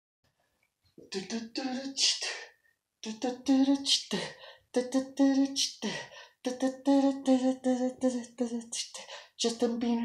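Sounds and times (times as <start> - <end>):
man beatboxing: 1.0 - 4.2.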